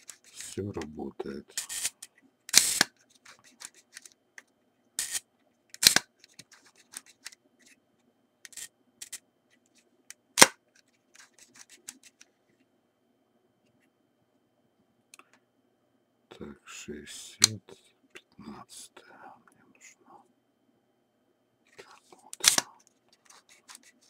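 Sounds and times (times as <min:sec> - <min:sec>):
camera shutter snapping: 0:02.5 - 0:02.9, 0:05.8 - 0:06.0, 0:22.4 - 0:22.7.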